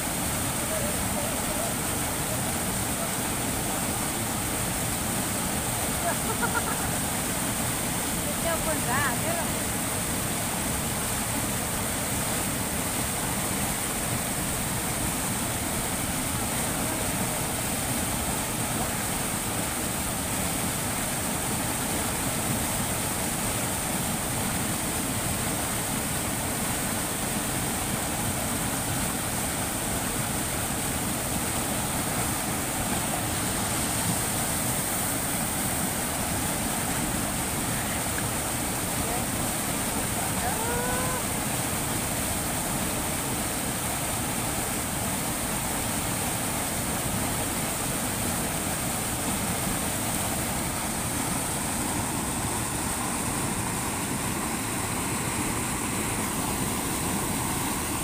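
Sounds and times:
stream rushing over rocks: 0.0s - 58.0s.

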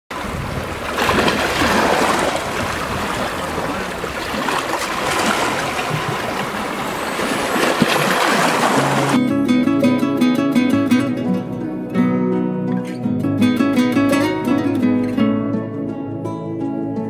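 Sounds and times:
waves washing over rocks: 0.1s - 9.2s.

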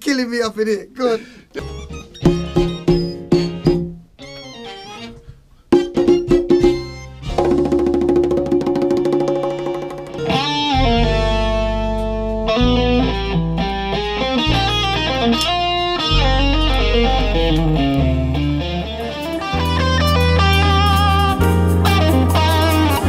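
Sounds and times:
jazz band music: 1.6s - 8.1s, 9.0s - 23.0s
electric bass low notes: 10.2s - 23.0s.

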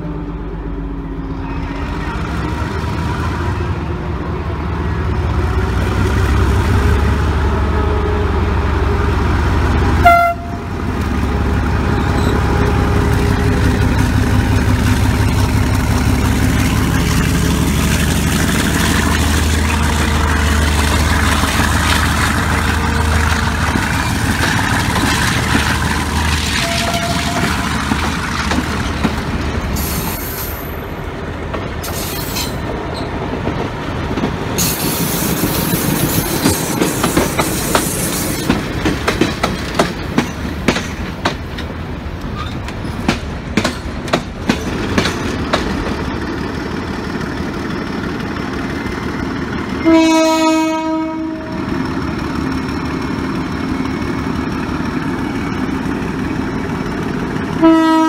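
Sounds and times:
locomotive engine rumbling: 0.0s - 58.0s
train horn toot: 10.0s - 13.7s, 26.5s - 27.6s, 49.8s - 51.7s, 57.6s - 58.0s.

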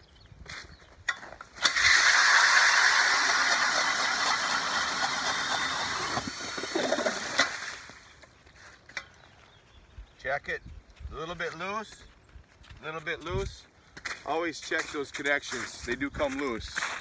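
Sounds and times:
drill auger grinding through ice: 1.5s - 8.2s.

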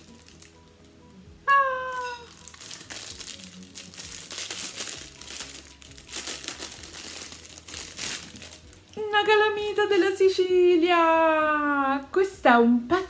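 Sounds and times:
wrapping paper crinkling: 0.0s - 0.8s, 1.9s - 10.1s
woman exclaiming: 1.5s - 2.3s.

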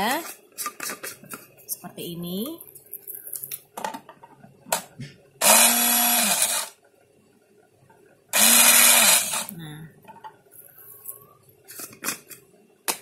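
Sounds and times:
blender whirring: 5.4s - 6.8s, 8.4s - 9.5s.

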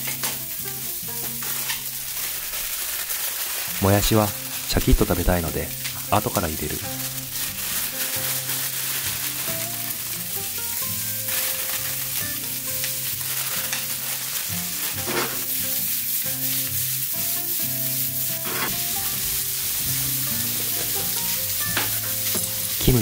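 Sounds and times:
food sizzling in a frying pan: 0.0s - 23.0s
pan being tossed: 18.3s - 19.0s.

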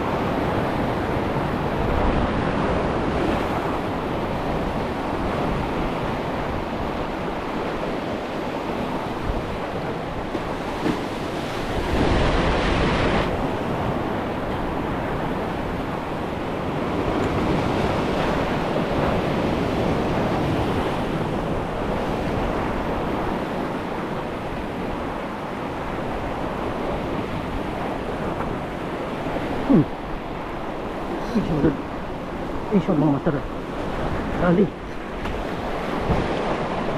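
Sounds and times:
surf washing over rocks: 0.0s - 36.9s
wind buffeting microphone: 0.0s - 36.9s.

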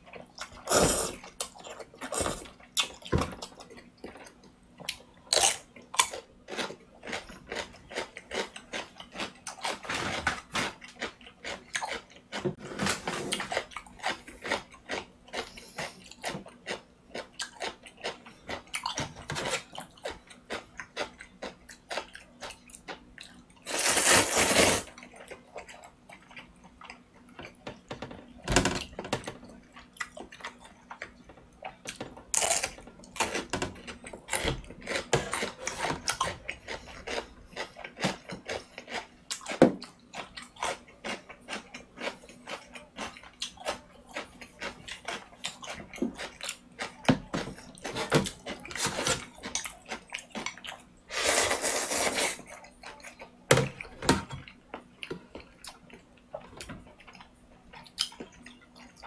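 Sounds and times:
chewing: 0.0s - 12.6s, 13.3s - 28.4s, 29.2s - 59.0s
noodles slurped: 23.7s - 24.9s, 51.1s - 52.4s.

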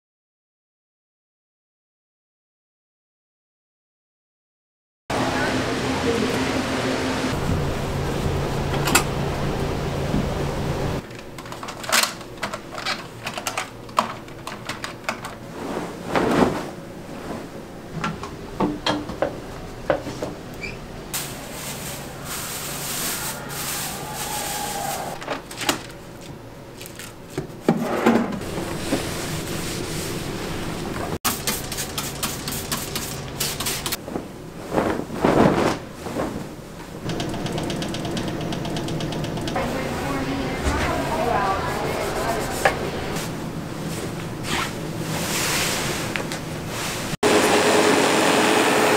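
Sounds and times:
clicks and knocks of objects: 11.0s - 15.4s
cloth rubbing over furniture: 15.5s - 17.6s, 33.9s - 36.8s, 40.9s - 47.2s
drawer opening: 27.6s - 28.8s.

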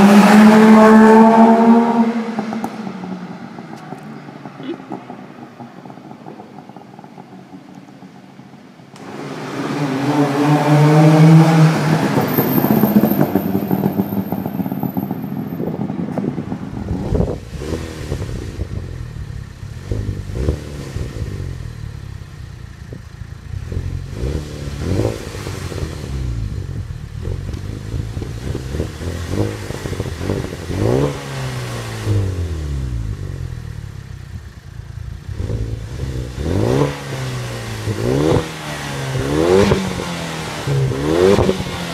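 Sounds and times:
two-stroke car driving past: 0.0s - 18.3s
car engine revving: 0.0s - 41.9s.

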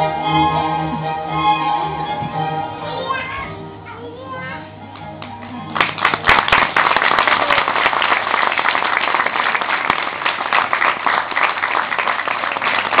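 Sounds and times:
audience applauding: 5.2s - 13.0s.

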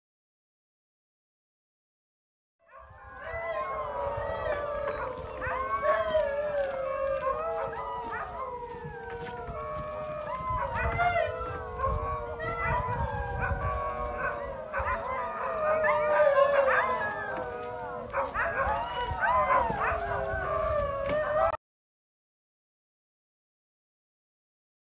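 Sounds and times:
huskies howling in chorus: 2.7s - 21.6s.

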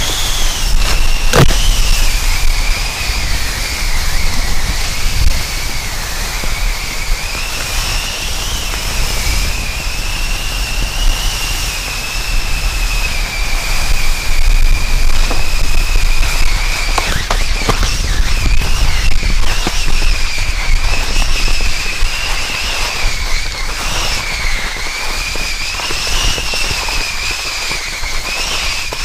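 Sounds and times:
drone propellers whining: 0.0s - 24.8s
low rumbling noise: 0.0s - 25.1s.

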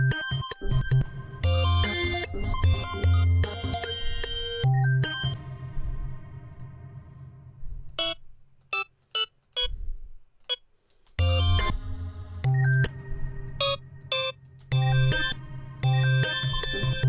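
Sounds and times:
electronic beat: 0.0s - 6.8s, 11.2s - 17.0s.

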